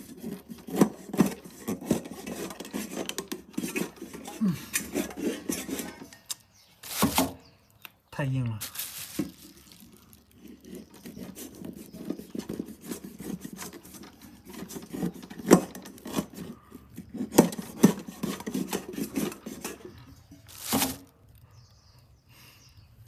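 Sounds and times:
cleaver sawing through dry meat: 0.0s - 6.1s, 9.7s - 20.1s
rustle: 8.3s - 10.6s, 20.4s - 21.2s.

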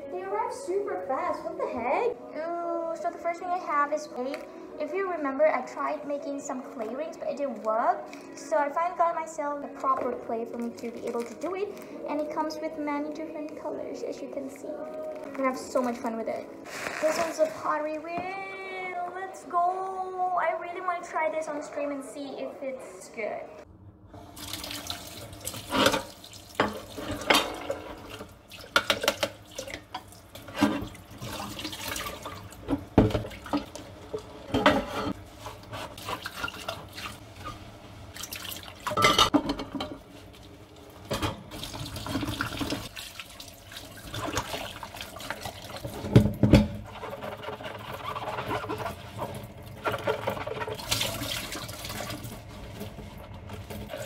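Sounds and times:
tap water running into sink: 24.3s - 34.2s, 41.1s - 47.1s, 47.8s - 52.4s
dishes knocking and clattering: 25.6s - 31.0s, 32.6s - 35.2s, 38.9s - 40.1s, 45.8s - 47.6s.

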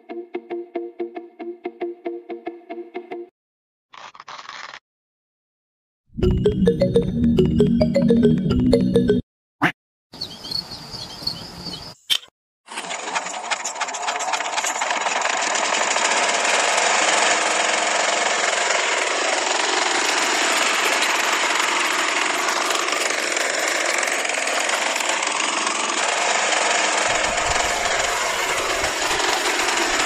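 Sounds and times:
small motor rattling buzz: 12.7s - 30.0s.

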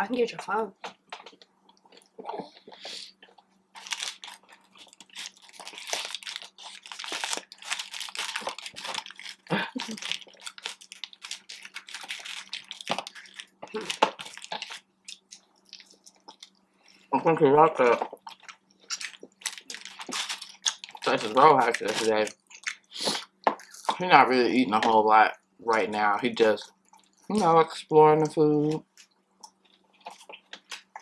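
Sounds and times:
chewing and crunching food: 0.9s - 17.1s, 17.8s - 24.1s, 25.7s - 27.6s, 28.2s - 31.0s
paper liner crinkling: 3.7s - 16.6s, 18.2s - 22.9s.

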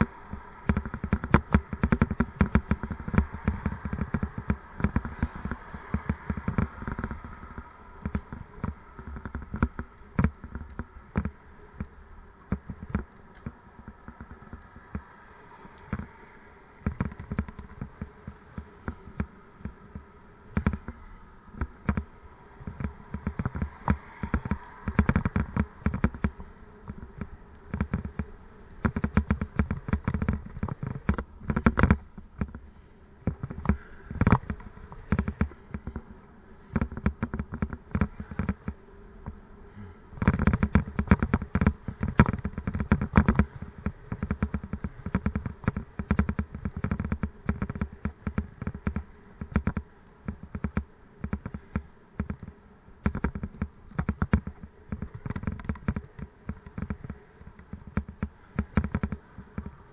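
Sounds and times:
bicycle rattling on rough road: 0.0s - 59.9s.

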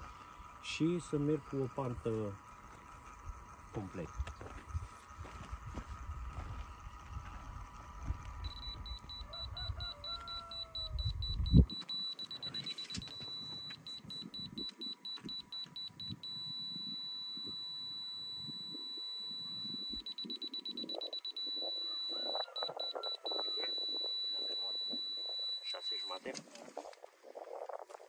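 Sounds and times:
laser receiver beeping: 8.4s - 26.3s.

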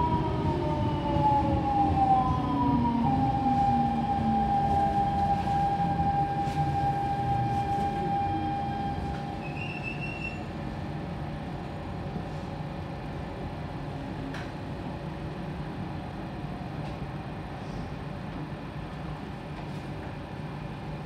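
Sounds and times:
brief high squeal: 8.7s - 10.5s.

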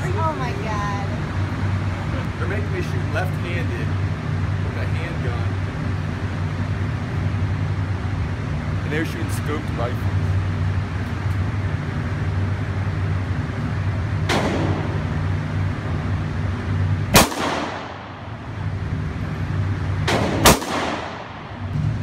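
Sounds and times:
steady low hum: 0.0s - 22.0s
handgun shots: 17.1s - 18.0s, 20.1s - 21.3s.

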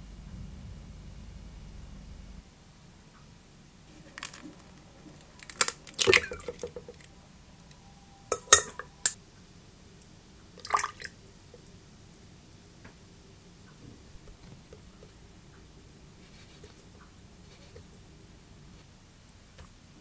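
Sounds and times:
egg cracking against metal bowl: 3.9s - 7.1s, 8.3s - 9.2s
water pouring splash: 5.6s - 7.0s, 10.6s - 11.1s
ice clinking into metal bowl: 8.3s - 9.2s.

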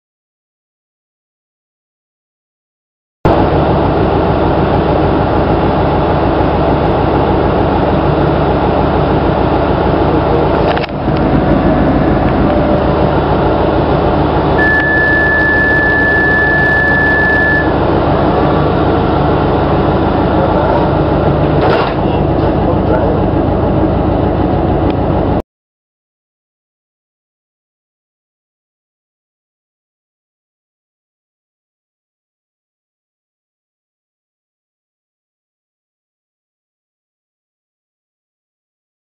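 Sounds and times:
diesel train engine humming: 3.3s - 25.4s
door warning beep: 14.6s - 17.8s.

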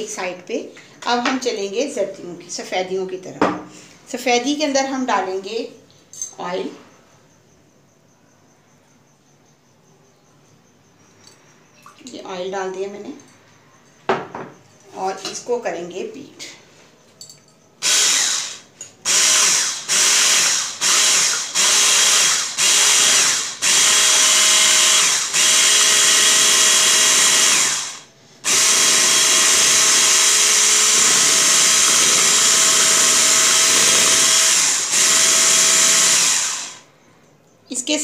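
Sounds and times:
electric hand mixer running: 17.8s - 36.8s.

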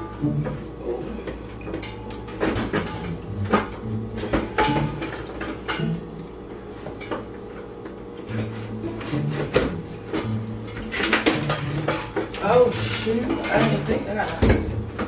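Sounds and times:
household objects knocking and clattering: 1.3s - 6.0s, 9.4s - 15.0s.

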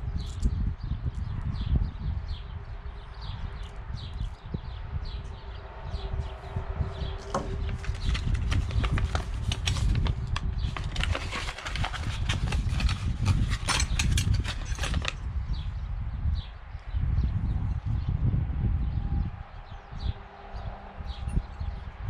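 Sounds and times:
paper rustling and crinkling: 7.2s - 15.2s
steady low rumble: 11.8s - 22.0s.

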